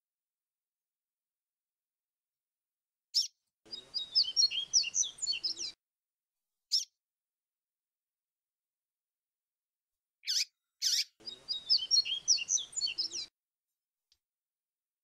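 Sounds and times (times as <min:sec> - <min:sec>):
bird singing whistled notes: 0:03.2 - 0:05.8, 0:10.3 - 0:13.3.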